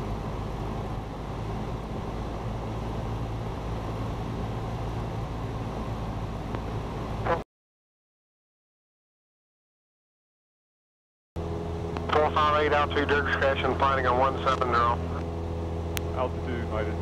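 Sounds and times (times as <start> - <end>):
airplane engine and propeller droning: 0.0 - 7.4, 11.4 - 17.0.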